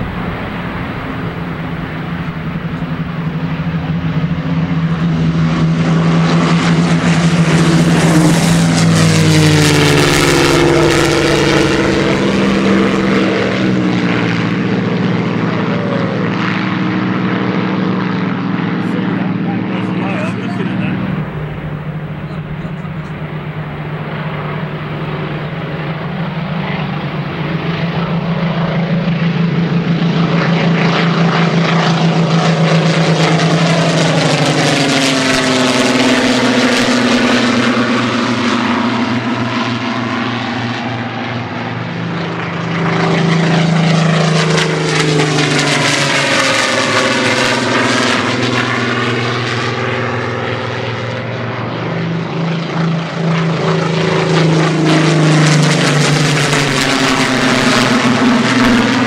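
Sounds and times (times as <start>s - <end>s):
propeller planes droning overhead: 0.0s - 59.0s.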